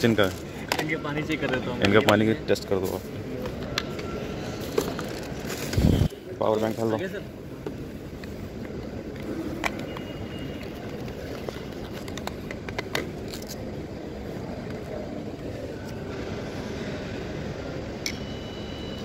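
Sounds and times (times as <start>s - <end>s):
devices and bags handled on table: 3.4s - 6.8s, 7.7s - 13.8s.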